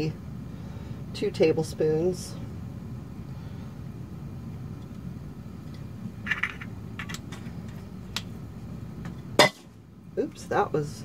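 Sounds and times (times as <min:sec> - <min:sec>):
steady low hum: 0:00.0 - 0:11.0
bottle clicks and scrape: 0:06.3 - 0:07.2.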